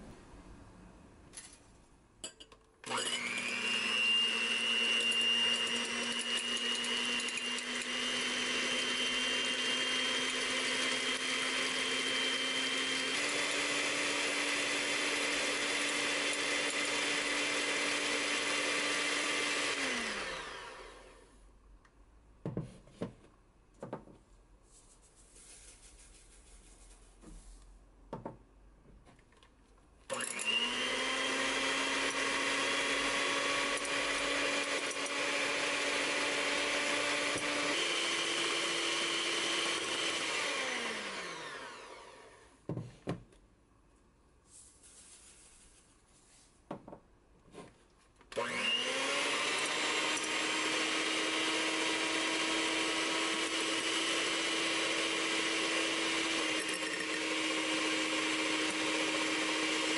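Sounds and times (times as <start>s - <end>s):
electric hand mixer whining: 2.8s - 21.3s, 30.1s - 42.6s, 48.3s - 59.9s
knock: 22.4s - 23.2s, 23.8s - 24.2s, 28.1s - 28.4s, 42.7s - 43.2s.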